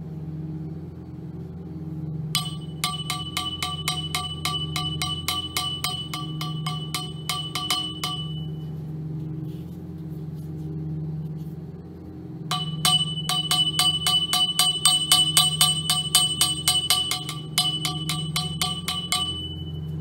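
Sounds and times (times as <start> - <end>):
steady low hum: 0.0 - 20.0
steel pipe tapping: 2.4 - 8.7, 12.5 - 20.0.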